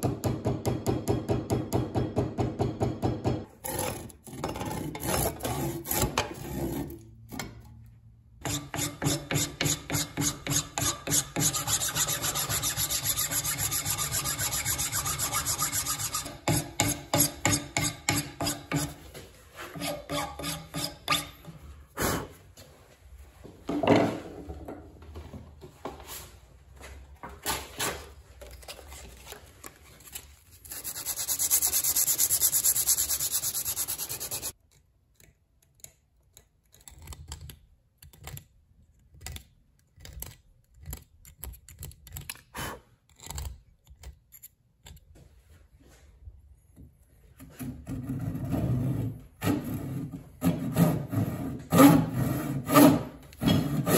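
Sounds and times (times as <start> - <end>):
file rasping on wood: 8.4 - 19.0, 19.7 - 21.4, 49.4 - 53.9
sanding sponge hissing: 30.7 - 34.5.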